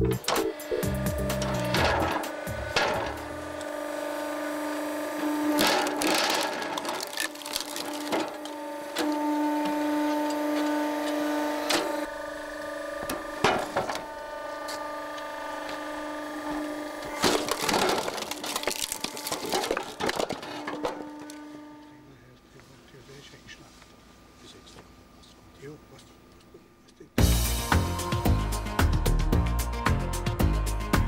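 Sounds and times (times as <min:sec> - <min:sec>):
log splitter hydraulic hum: 0:00.0 - 0:28.9
wood cracking and knocking: 0:05.6 - 0:08.6, 0:17.0 - 0:21.3.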